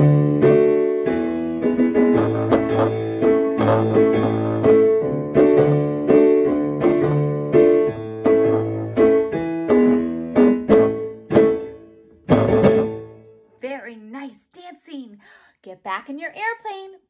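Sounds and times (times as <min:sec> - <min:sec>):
piano chords: 0:00.0 - 0:13.5.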